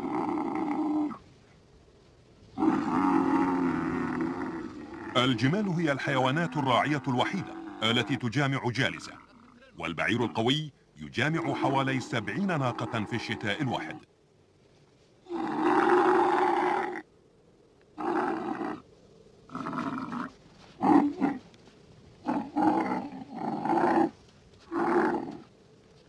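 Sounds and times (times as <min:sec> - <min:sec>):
camel bellowing: 0:00.0 - 0:01.2, 0:02.6 - 0:10.5, 0:15.3 - 0:17.1, 0:18.0 - 0:18.9, 0:19.5 - 0:21.5, 0:22.2 - 0:25.5.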